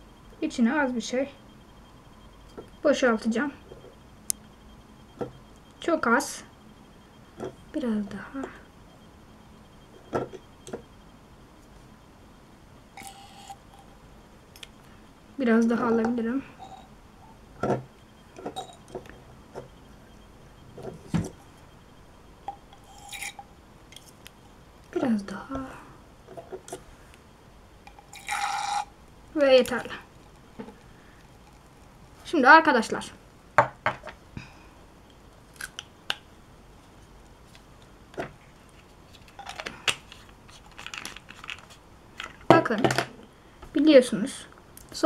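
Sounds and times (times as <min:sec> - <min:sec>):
plastic lab items clicking: 0:39.2 - 0:42.9.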